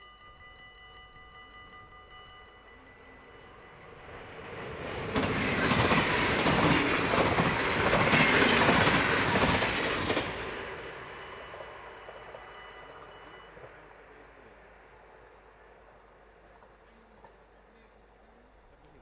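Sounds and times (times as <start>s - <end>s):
passenger train passing: 0.0s - 18.6s
train wheel clatter: 3.0s - 14.3s.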